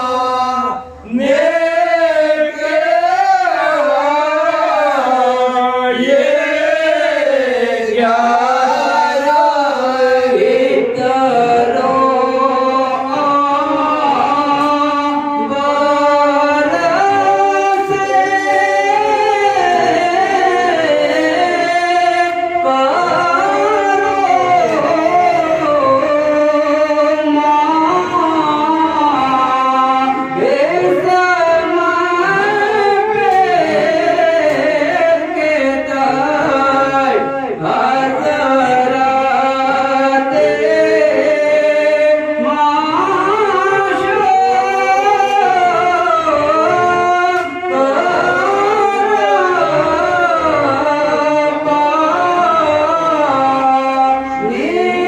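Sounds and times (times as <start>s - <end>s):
man singing into microphone: 0.0s - 55.0s.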